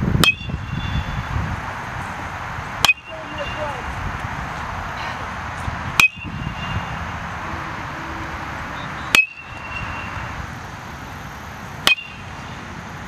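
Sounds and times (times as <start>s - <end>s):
metal bat hitting ball: 0.2s - 0.5s, 2.8s - 3.1s, 6.0s - 6.3s, 9.1s - 9.8s, 11.8s - 12.2s.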